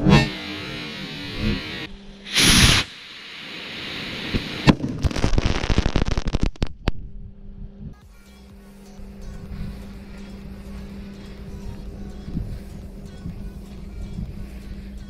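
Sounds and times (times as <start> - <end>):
hiss: 0.4 - 6.2, 8.8 - 15.0
burning firecracker crackling: 1.2 - 7.0
firecracker blast: 2.3 - 7.0
sharp crack: 2.3 - 7.0.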